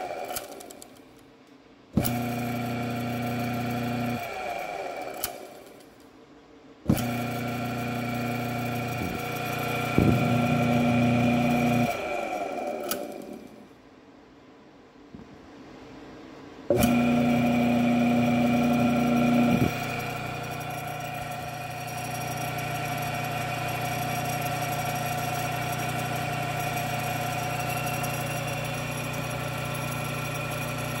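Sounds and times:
electric motor humming: 0:06.9 - 0:13.4, 0:16.7 - 0:31.0.

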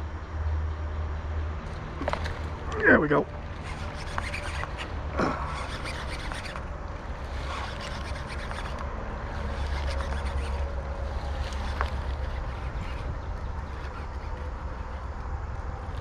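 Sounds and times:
fishing reel being cranked: 0:03.6 - 0:06.6, 0:07.3 - 0:14.7
wind buffeting microphone: 0:06.2 - 0:16.0.

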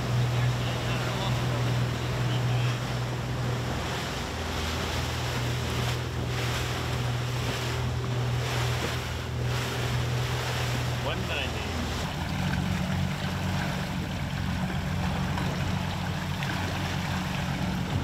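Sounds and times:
boat engine hum: 0:00.0 - 0:18.0
water rushing: 0:00.0 - 0:18.0.

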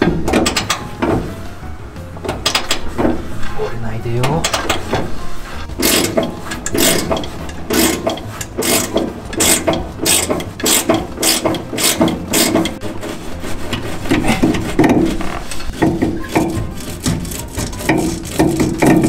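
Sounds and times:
ratchet wrench clicking: 0:05.8 - 0:12.8.

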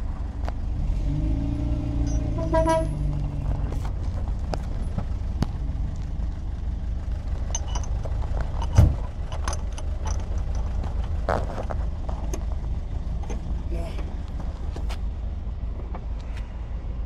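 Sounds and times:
vehicle engine idling: 0:00.0 - 0:17.0
metallic clinks of shackle: 0:02.0 - 0:02.4, 0:07.4 - 0:11.1.

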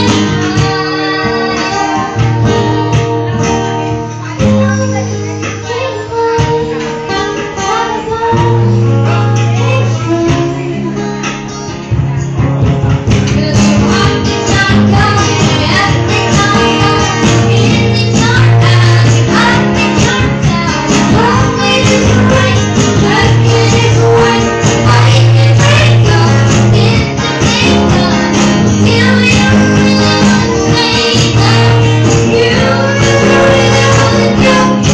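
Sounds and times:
boy and man singing: 0:00.0 - 0:03.0, 0:13.3 - 0:34.9
strummed acoustic guitar: 0:00.0 - 0:34.9.

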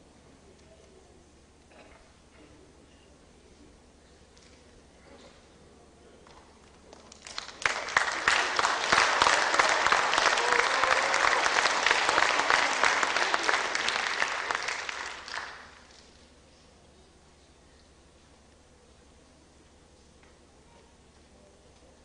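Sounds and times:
crowd applauding: 0:07.0 - 0:16.0.

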